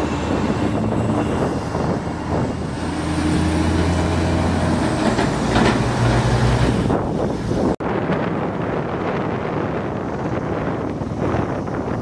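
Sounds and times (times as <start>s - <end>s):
cars passing: 0.0s - 7.8s
truck engine drone: 0.0s - 12.0s.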